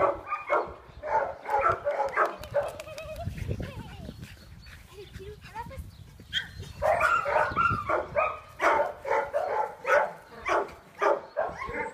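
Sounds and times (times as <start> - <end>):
dogs barking: 0.0 - 2.8, 6.3 - 11.9.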